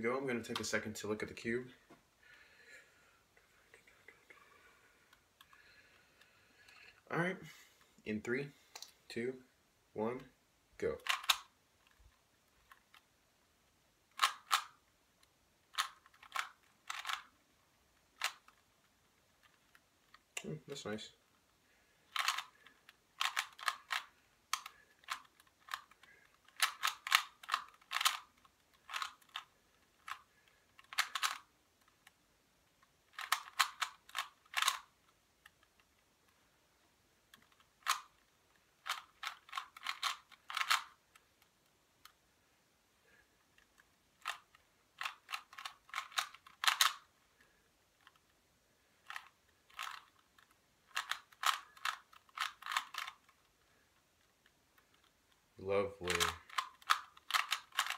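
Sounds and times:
puzzle cube clicking as turned: 11.0 - 20.5, 21.2 - 36.4, 37.2 - 42.2, 43.2 - 57.9.

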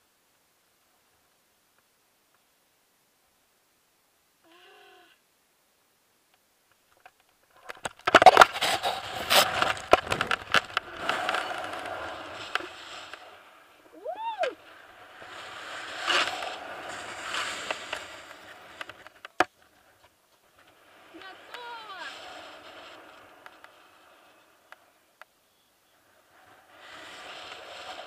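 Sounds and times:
short high cry: 14.0 - 14.6.

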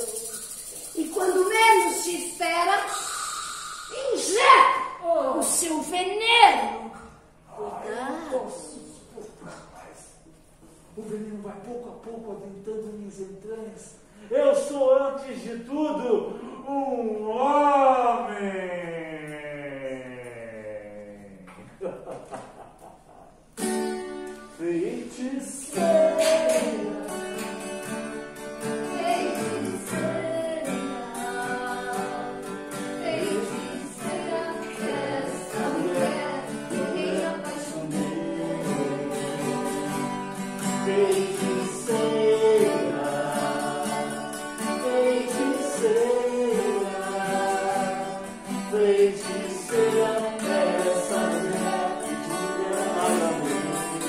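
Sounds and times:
several voices singing: 24.6 - 54.0.

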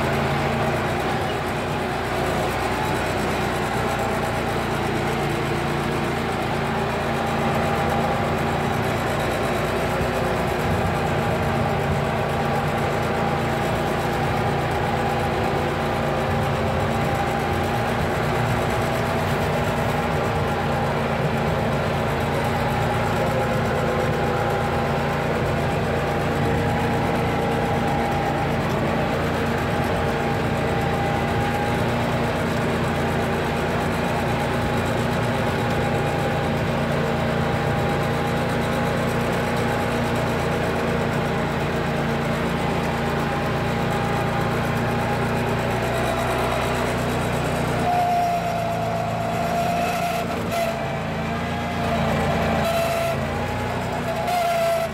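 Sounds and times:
garden tractor engine running: 0.0 - 54.9
steady whine: 0.0 - 54.9.

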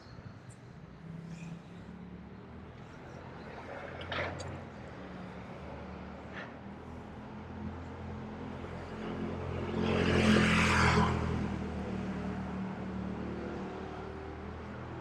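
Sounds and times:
steady engine hum: 0.0 - 15.0
vehicle passing: 0.9 - 15.0.

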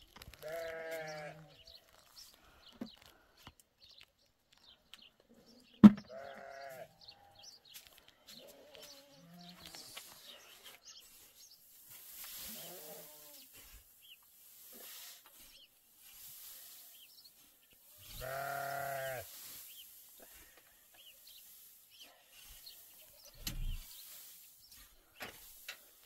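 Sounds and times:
long bleat: 0.4 - 1.5, 6.1 - 6.9, 18.0 - 19.3
sharp thump: 5.8 - 6.1
pitchfork scraping and rustling straw: 9.7 - 26.0.

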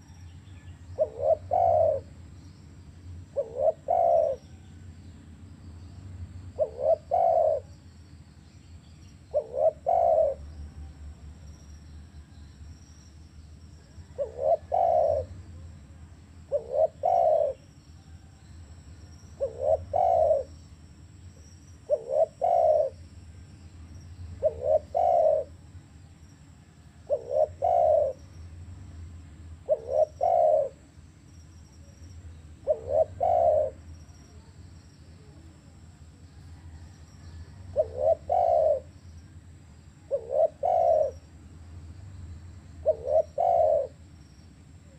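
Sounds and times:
dove cooing: 1.0 - 2.3, 3.2 - 4.7, 6.6 - 7.7, 9.3 - 10.9, 13.8 - 15.8, 16.4 - 17.8, 19.3 - 20.6, 21.8 - 23.0, 24.4 - 25.7, 27.0 - 28.4, 29.6 - 30.8, 32.6 - 35.8, 36.5 - 39.0, 39.9 - 41.3, 42.8 - 44.0.

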